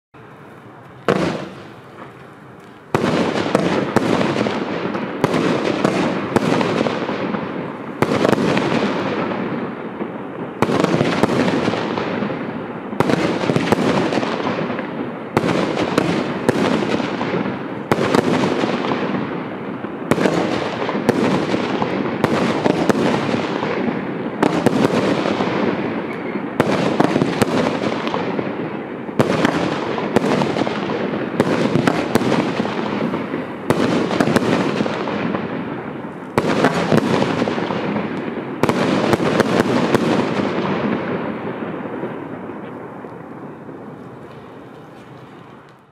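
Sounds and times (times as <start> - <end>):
firework crack: 0.2 - 45.9
firework shots with hiss: 0.3 - 45.9.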